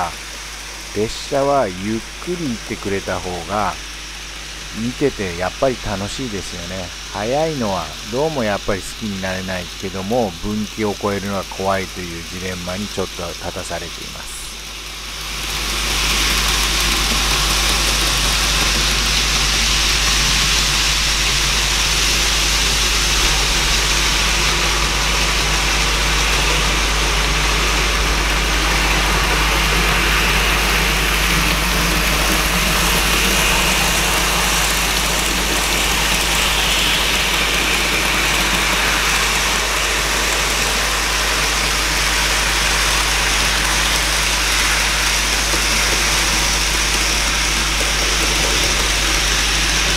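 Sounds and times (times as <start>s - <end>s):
low steady hum: 0.0s - 49.9s
model trains whirring on rails: 0.0s - 49.9s.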